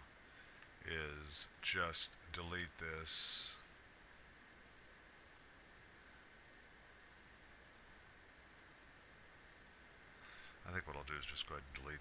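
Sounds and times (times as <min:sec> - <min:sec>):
low steady hum: 0:00.0 - 0:12.0
computer mouse clicks: 0:07.2 - 0:07.9, 0:08.5 - 0:08.7.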